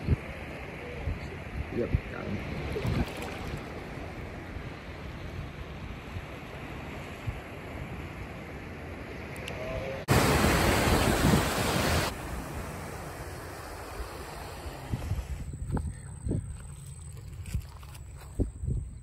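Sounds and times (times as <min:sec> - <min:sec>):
wind on the microphone: 0:00.0 - 0:00.4, 0:01.0 - 0:06.5, 0:10.6 - 0:12.1, 0:14.3 - 0:19.0
small waves washing: 0:00.4 - 0:09.2, 0:10.1 - 0:15.5.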